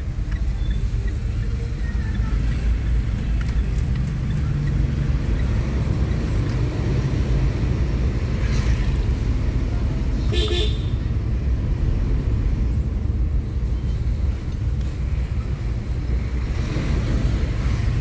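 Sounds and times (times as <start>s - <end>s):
car engine and road rumble: 0.0s - 18.0s
car horn toot: 10.2s - 11.0s.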